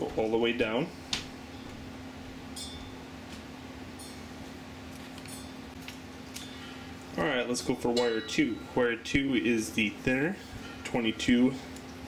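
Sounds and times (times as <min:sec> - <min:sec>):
steady low hum: 0:00.0 - 0:12.0
light metallic tinks: 0:02.5 - 0:03.0, 0:04.0 - 0:04.3, 0:05.2 - 0:05.6, 0:07.9 - 0:08.8.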